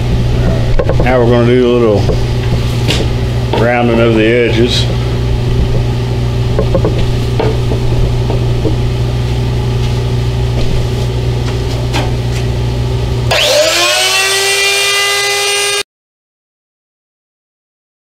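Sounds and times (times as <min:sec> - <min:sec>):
low hum: 0:00.0 - 0:15.8
handling clicks and knocks: 0:06.5 - 0:08.8
router motor whine: 0:13.3 - 0:15.9.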